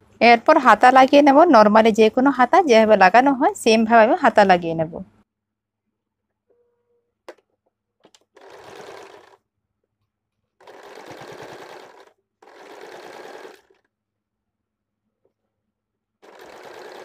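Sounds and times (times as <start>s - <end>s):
sewing machine stitching: 8.0s - 9.4s, 10.6s - 13.9s, 16.2s - 17.0s.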